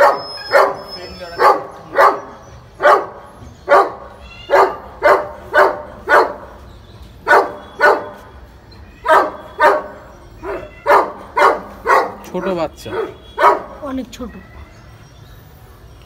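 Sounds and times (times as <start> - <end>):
dog barking: 0.0 - 6.6, 7.2 - 8.3, 9.0 - 13.8.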